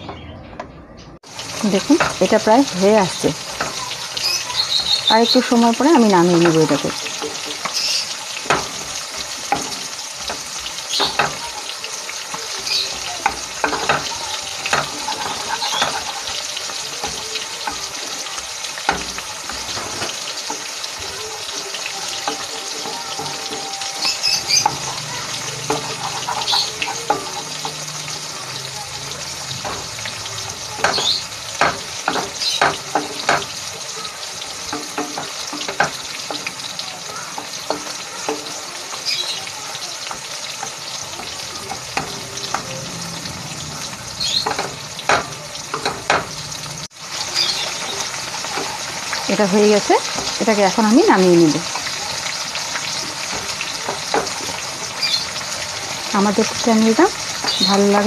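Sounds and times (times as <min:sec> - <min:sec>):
paste sizzling in a frying pan: 0:01.2 - 0:58.0
wooden spatula scraping a pan: 0:12.5 - 0:28.6.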